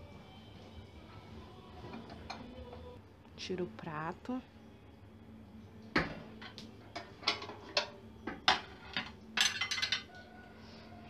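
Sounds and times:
microwave turntable parts clinking: 6.4 - 10.1.

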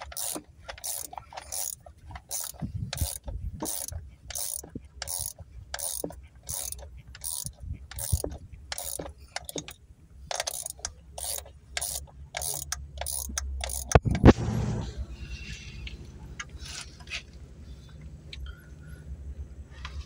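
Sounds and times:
ratchet wrench clicking: 0.0 - 14.1.

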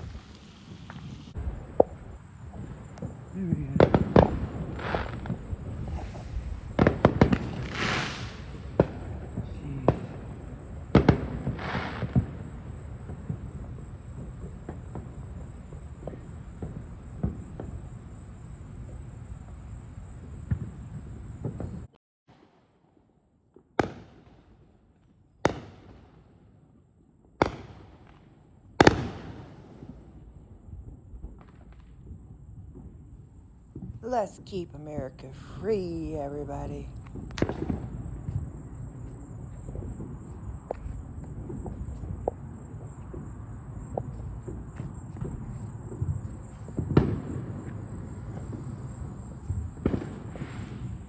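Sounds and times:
fireworks bangs: 0.0 - 12.5, 34.0 - 38.0.

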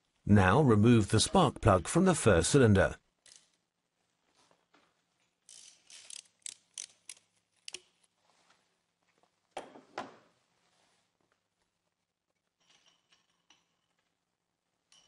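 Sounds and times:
ratchet wrench clicking: 5.5 - 7.9.

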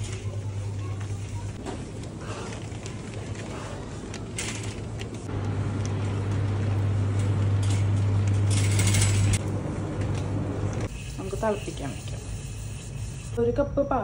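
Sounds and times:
shopping cart wheels rolling: 0.0 - 5.3, 7.2 - 9.4
steady low hum: 0.0 - 14.0.

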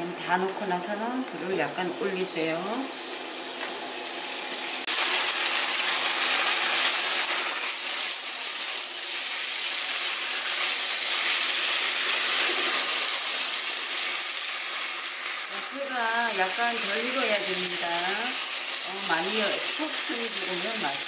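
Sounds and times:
food sizzling in a pan: 0.5 - 21.0
spatula stirring food: 5.1 - 15.8.

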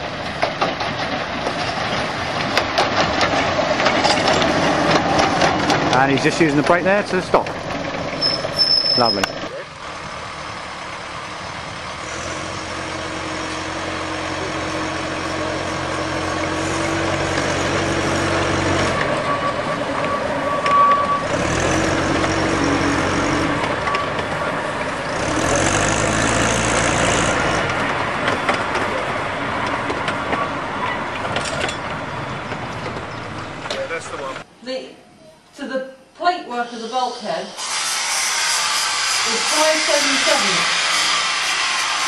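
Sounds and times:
diesel locomotive engine: 0.0 - 34.6, 37.1 - 42.0.

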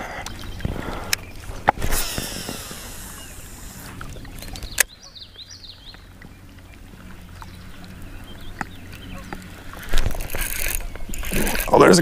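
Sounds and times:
fishing reel spool whirring: 0.2 - 12.0
bird chirping: 4.2 - 9.6.

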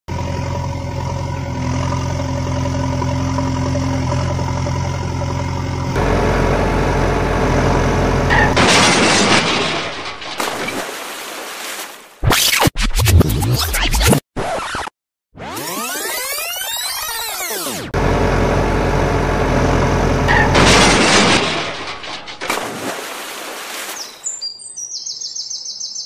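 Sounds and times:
heavy vehicle engine idling: 0.1 - 8.6, 18.0 - 21.0
crash and splash: 8.3 - 12.8, 20.3 - 24.2.

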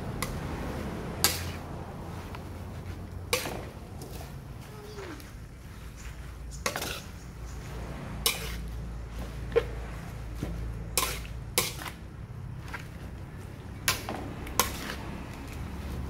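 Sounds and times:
metal spatula scraping a wok: 1.2 - 1.7, 3.3 - 4.2, 6.6 - 7.2, 8.2 - 8.8, 10.9 - 12.0, 13.9 - 16.0.

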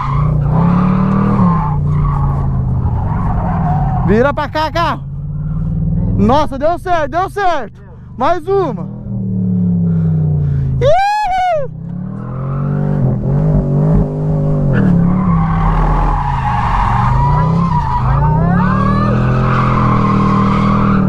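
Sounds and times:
car engine revving: 0.0 - 10.8, 11.6 - 21.0
tyres squealing: 14.8 - 21.0.

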